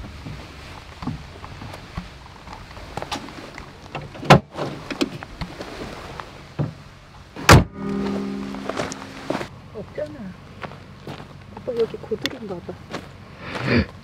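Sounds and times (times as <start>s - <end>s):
low hum: 6.9s - 11.6s
car bonnet shutting thuds: 7.4s - 8.9s.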